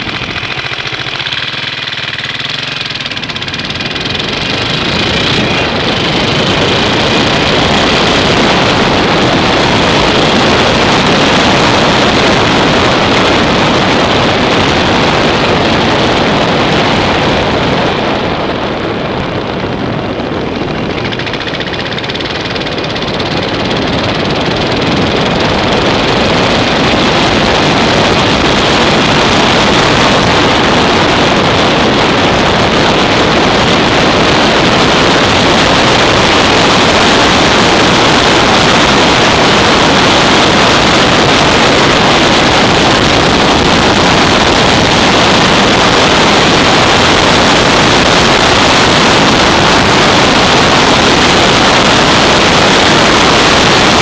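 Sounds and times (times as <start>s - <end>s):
motorcycle engine running: 0.0s - 54.0s
wind rush on microphone: 0.0s - 54.0s.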